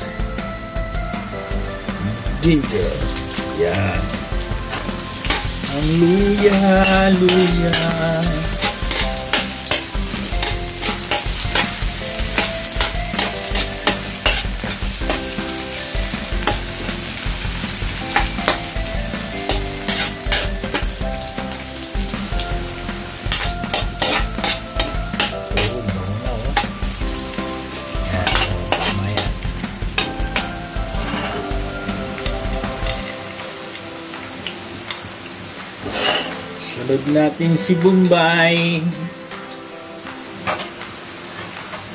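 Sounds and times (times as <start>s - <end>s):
food sizzling in hot oil: 0.0s - 41.9s
metal spatula scraping wok: 4.2s - 21.0s, 22.9s - 25.7s, 26.5s - 33.3s, 35.8s - 36.6s.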